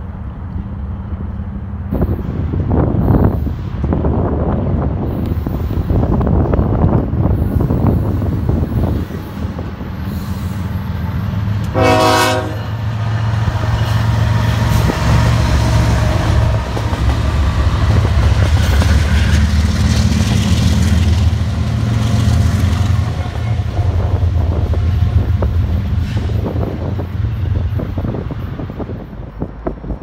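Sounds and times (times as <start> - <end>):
diesel locomotives droning: 0.0 - 30.0
train horn blast: 11.6 - 12.9.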